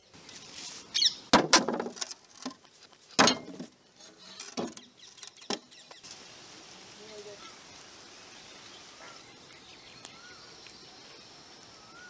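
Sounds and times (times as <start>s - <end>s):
objects clanking on metal lid: 3.2s - 3.7s.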